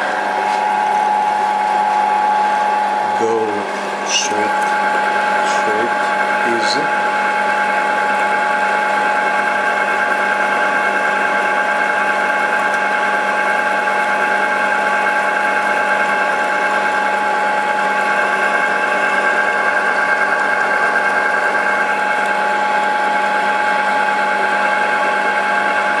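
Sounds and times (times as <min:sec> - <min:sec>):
milling machine cutting metal: 0:00.0 - 0:10.8.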